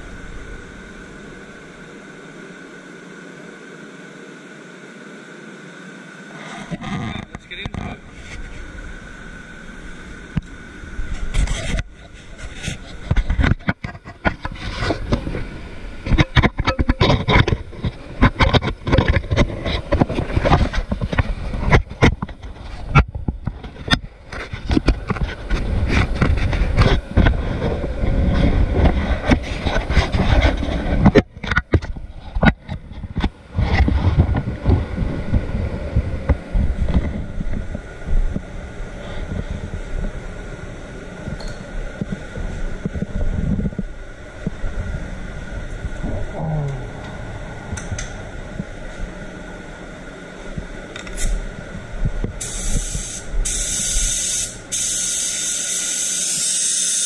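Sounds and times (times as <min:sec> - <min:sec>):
clothing rubbing on microphone: 0:06.3 - 0:08.8, 0:11.1 - 0:38.4
steady air rush: 0:42.2 - 0:56.8.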